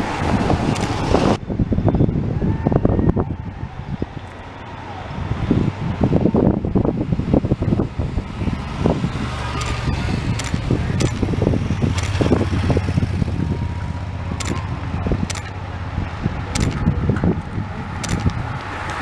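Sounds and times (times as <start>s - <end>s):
vehicle engines rumbling: 0.0s - 19.0s
sharp clicks: 0.7s - 1.0s, 9.5s - 12.5s, 14.4s - 15.6s, 16.5s - 16.9s, 18.0s - 19.0s.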